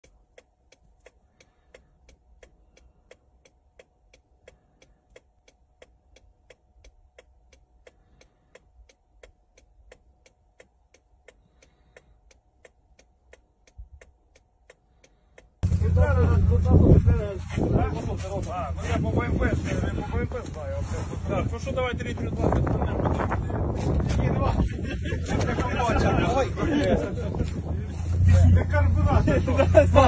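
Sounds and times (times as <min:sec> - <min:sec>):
faint clock-like ticking: 0:00.0 - 0:15.6
faint steady hum: 0:00.0 - 0:27.8.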